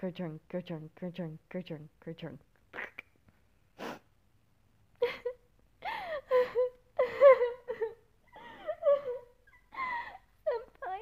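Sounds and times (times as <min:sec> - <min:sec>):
woman crying and whimpering: 0:05.0 - 0:11.0.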